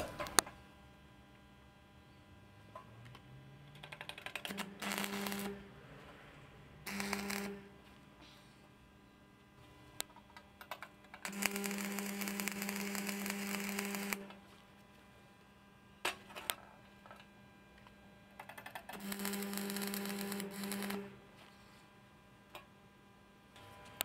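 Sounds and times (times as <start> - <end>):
welding arc crackling and buzzing: 3.1 - 6.0, 6.6 - 8.2, 9.8 - 24.0
welding rod ticks: 3.7 - 5.5, 6.9 - 7.5, 10.7 - 14.3, 18.4 - 21.0.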